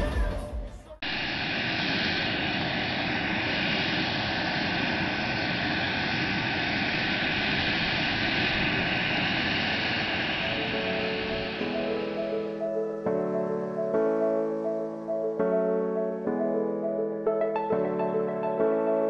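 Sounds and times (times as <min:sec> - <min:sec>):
jet engines at taxi power: 0:01.0 - 0:19.0.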